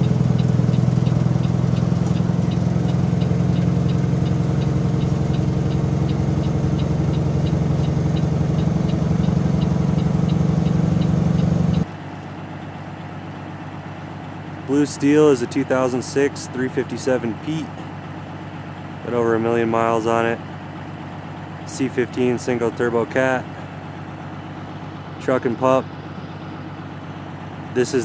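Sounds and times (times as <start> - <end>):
light ticking: 0.0 - 11.9
truck diesel engine running: 0.0 - 28.0.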